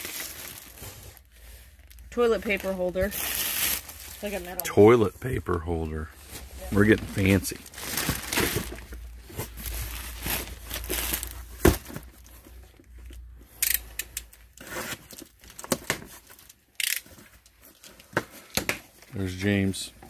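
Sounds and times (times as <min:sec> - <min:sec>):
packaging crinkling and tearing: 0:00.0 - 0:04.7, 0:06.7 - 0:12.4, 0:13.8 - 0:18.1.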